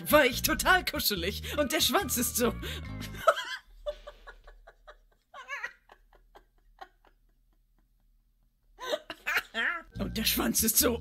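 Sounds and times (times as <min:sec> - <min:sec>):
person giggling: 0:02.8 - 0:10.0.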